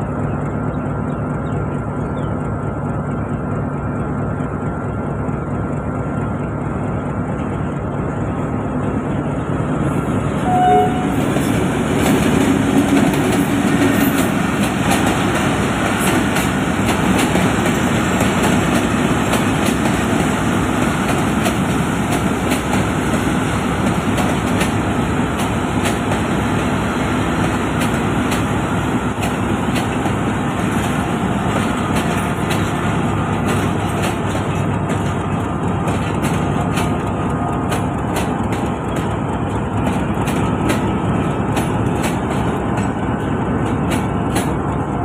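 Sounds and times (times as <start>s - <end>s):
low train rumble: 0.0s - 45.0s
train wheels clicking over rail joints: 11.1s - 45.0s.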